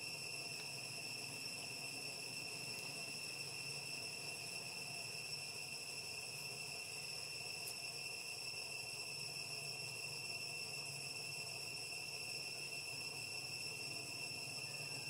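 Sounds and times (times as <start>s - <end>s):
insect chorus drone: 0.0s - 15.0s.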